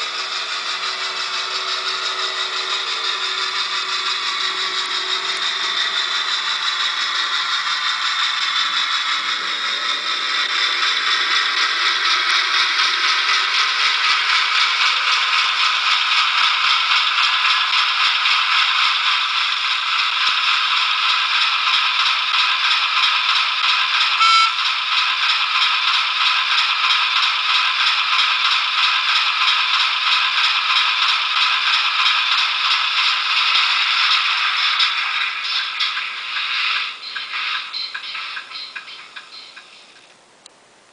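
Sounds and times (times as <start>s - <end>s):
brief high-pitched tone: 24.2s - 24.6s.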